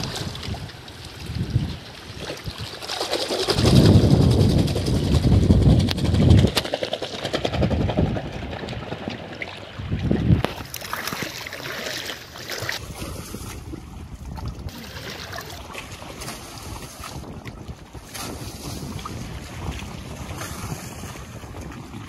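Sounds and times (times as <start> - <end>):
water sloshing in a plastic bucket: 8.9 - 18.8.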